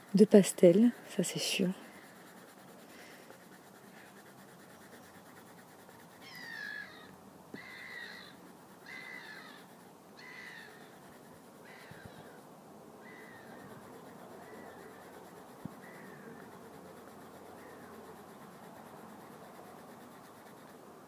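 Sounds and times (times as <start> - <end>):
bird calling: 6.2 - 12.4, 13.0 - 16.6.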